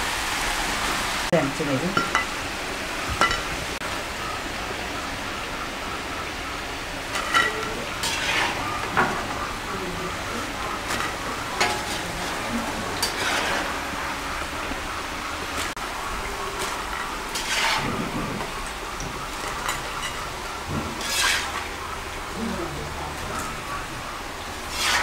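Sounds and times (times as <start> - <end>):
fries sizzling in oil: 0.0 - 25.0
metal spatula scraping and clinking: 7.2 - 8.6, 10.9 - 12.0, 16.6 - 17.9, 21.0 - 21.6.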